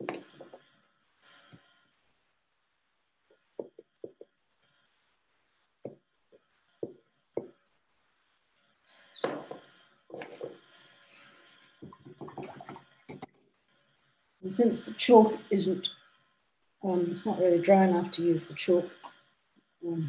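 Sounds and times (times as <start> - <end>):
pastel tapping on paper: 3.6 - 4.3.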